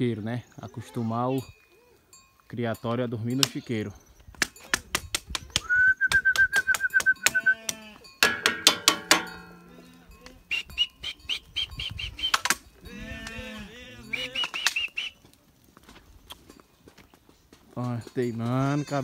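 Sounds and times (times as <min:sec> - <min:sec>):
goats bleating: 0:07.2 - 0:08.1, 0:12.8 - 0:14.6, 0:18.4 - 0:19.0.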